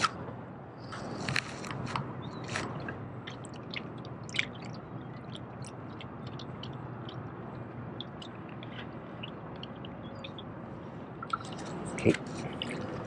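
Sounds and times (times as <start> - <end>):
water lapping among rocks: 2.4 - 10.4.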